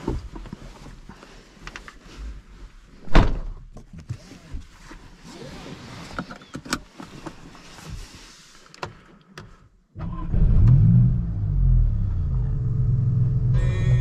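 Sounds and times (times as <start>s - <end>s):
rustling: 3.7s - 9.1s
car engine starting and revving: 10.0s - 14.0s.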